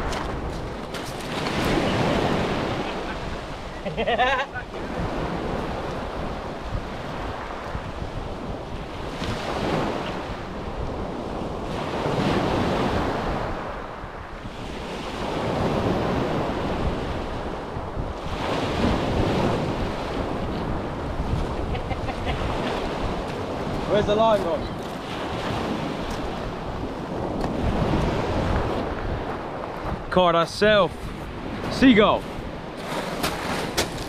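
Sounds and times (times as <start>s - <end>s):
waves breaking on shingle: 0.0s - 3.6s, 32.7s - 34.0s
wind rumbling on microphone: 0.0s - 34.0s.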